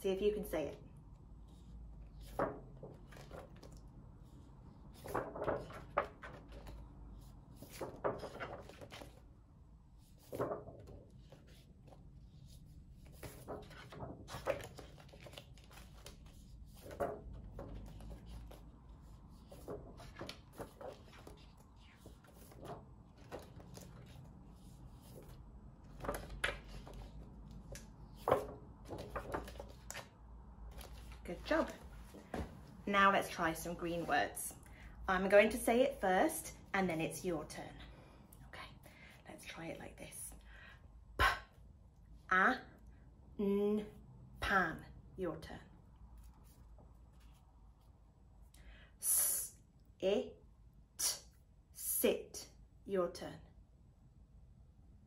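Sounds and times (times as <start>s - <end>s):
faint room hum: 0.0s - 55.0s
plastic flashcards rustling: 4.9s - 9.3s, 13.0s - 32.8s.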